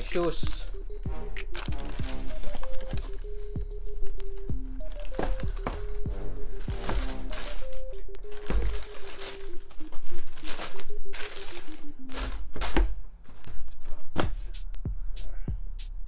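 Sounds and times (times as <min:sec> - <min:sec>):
background music with bass beat: 0:00.0 - 0:08.3, 0:14.2 - 0:16.0
tissue paper crinkling: 0:01.4 - 0:14.0.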